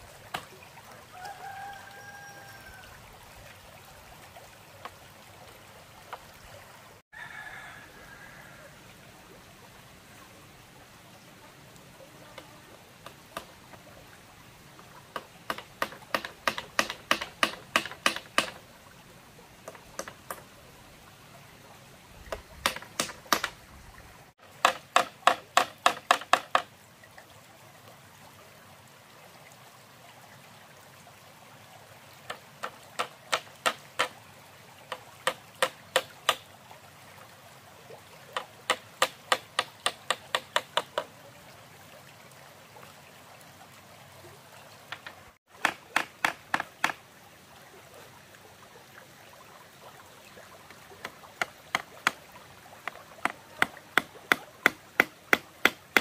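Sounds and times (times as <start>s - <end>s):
shallow stream rushing: 0.0s - 56.0s
hammer tapping bamboo on wood: 15.1s - 18.6s, 19.6s - 20.4s, 22.3s - 23.6s, 24.5s - 26.7s, 32.3s - 34.2s, 35.2s - 36.4s, 38.4s - 41.1s, 44.9s - 47.0s, 51.0s - 52.2s, 52.8s - 56.0s.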